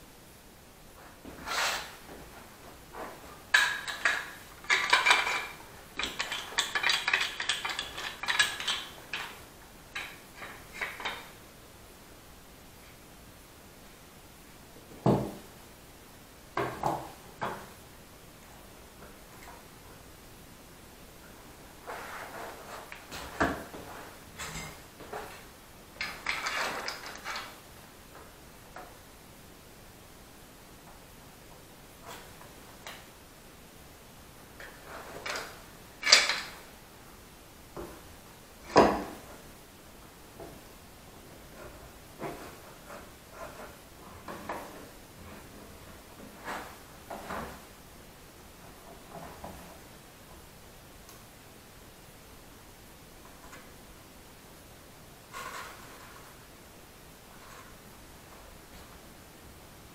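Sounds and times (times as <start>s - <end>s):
scraping and rustling: 1.0s - 9.4s, 21.8s - 27.6s, 41.4s - 47.7s, 55.2s - 56.5s, 57.2s - 59.0s
metal clamps and tools clattering: 3.5s - 9.4s
knocks on a workbench: 15.0s - 15.4s.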